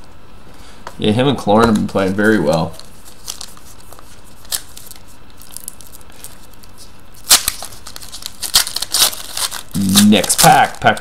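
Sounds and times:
foil crinkling: 2.1s - 11.0s
foil wrapper ripping: 2.8s - 11.0s.

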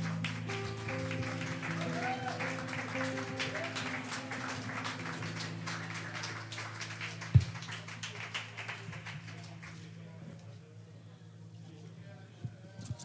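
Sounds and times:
audience applause: 0.0s - 9.9s.

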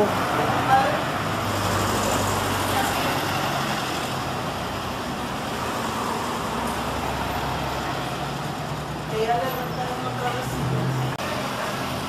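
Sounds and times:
car engines passing: 0.0s - 12.0s.

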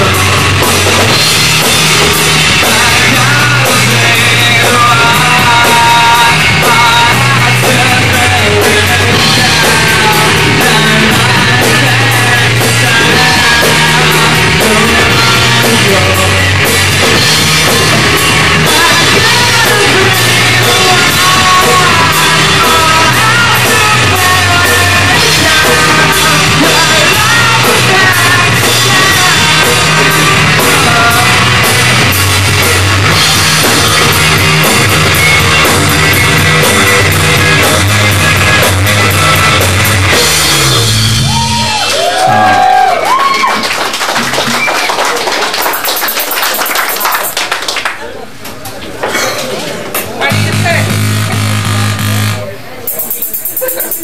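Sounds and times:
person singing: 0.0s - 40.4s
electric guitar: 0.0s - 47.4s, 50.0s - 54.0s
drum kit: 0.0s - 47.5s, 49.9s - 54.0s.

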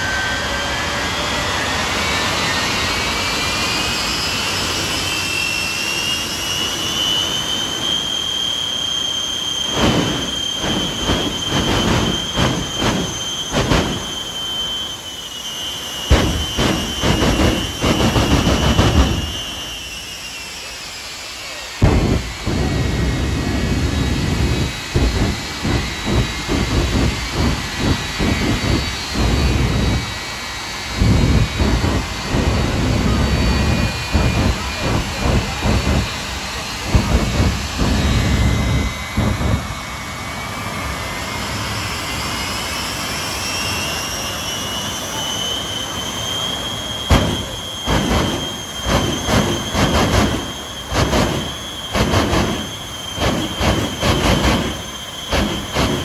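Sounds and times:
jet turbine whine: 0.0s - 56.0s
low afterburner blasts: 9.6s - 15.2s, 15.8s - 20.2s, 21.8s - 41.8s, 46.7s - 56.0s
sharp bangs: 9.7s - 14.8s, 16.0s - 19.9s, 21.8s - 30.3s, 31.0s - 39.8s, 47.1s - 56.0s.

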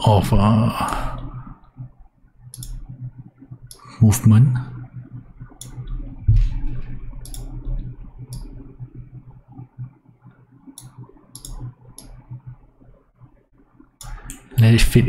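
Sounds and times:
computer mouse clicking: 2.5s - 3.9s, 4.9s - 6.0s, 6.8s - 12.5s.

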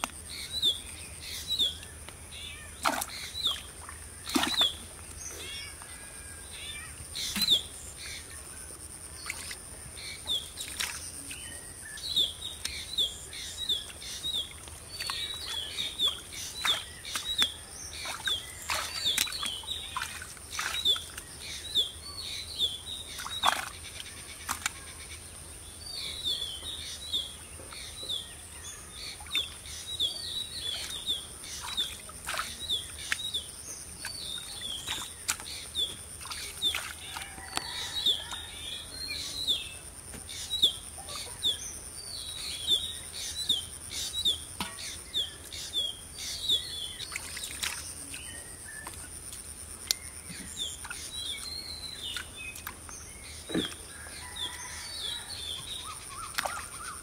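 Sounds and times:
small birds chirping: 0.0s - 57.0s
hands squelching in muddy water: 2.8s - 5.6s, 14.2s - 21.4s, 23.1s - 25.0s, 30.6s - 38.5s, 47.0s - 50.0s, 55.9s - 57.0s.

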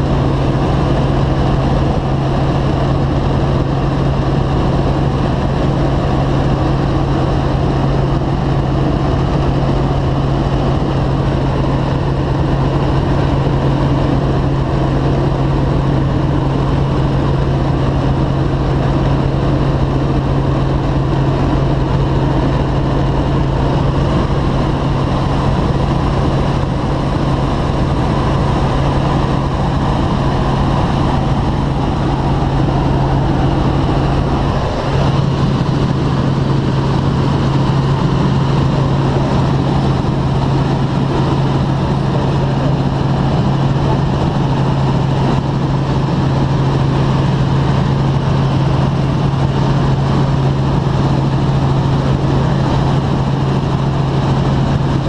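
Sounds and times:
helicopter rotor and engine drone: 0.0s - 55.0s.

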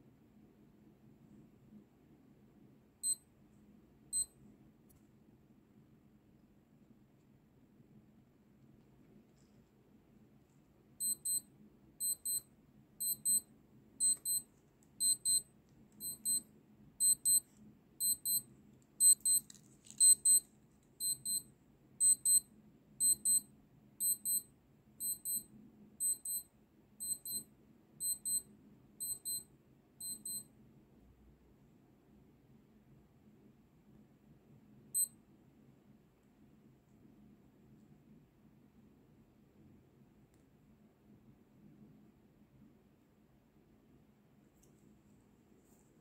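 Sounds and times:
watch alarm double beeps: 3.0s - 3.2s, 4.1s - 4.3s, 11.0s - 14.4s, 15.0s - 16.4s, 17.0s - 17.4s, 18.0s - 19.4s, 20.0s - 20.4s, 21.0s - 30.5s.

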